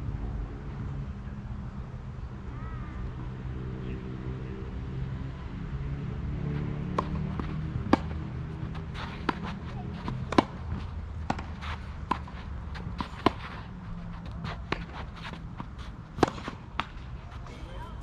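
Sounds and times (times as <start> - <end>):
tennis ball bouncing: 6.5 - 18.0
racket hitting tennis ball: 6.8 - 18.0
footsteps on clay: 7.0 - 18.0.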